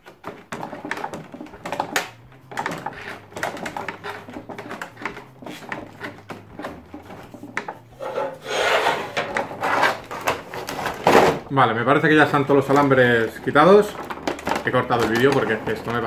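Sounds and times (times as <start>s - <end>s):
plastic tray rustling: 0.0s - 16.0s
plastic packaging crinkling: 12.2s - 16.0s.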